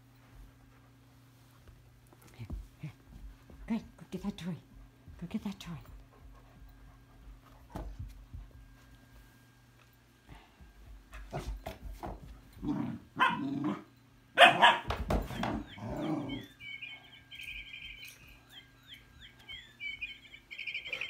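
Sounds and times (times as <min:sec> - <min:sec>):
dogs barking: 0:13.2 - 0:13.8, 0:14.4 - 0:16.5.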